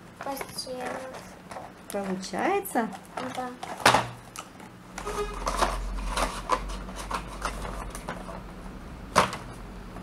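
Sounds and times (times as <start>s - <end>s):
cardboard packaging rustling: 5.0s - 8.4s.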